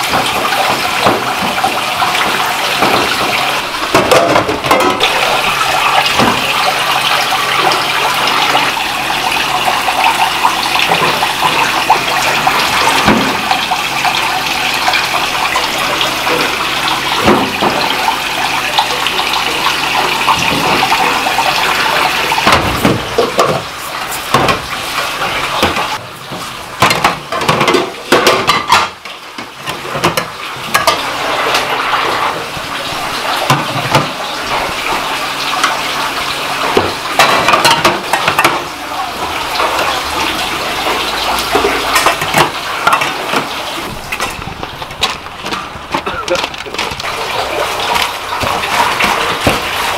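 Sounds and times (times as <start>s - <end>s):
knocks and clatter: 0.0s - 19.6s, 20.2s - 32.4s, 36.6s - 49.9s
tap water running into sink: 0.0s - 49.9s.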